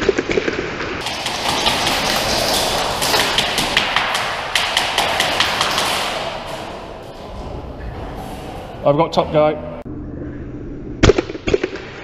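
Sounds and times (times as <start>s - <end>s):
airsoft gunshots: 0.0s - 6.9s
pellets striking cover: 1.0s - 6.9s
echoing hall din: 1.0s - 9.9s.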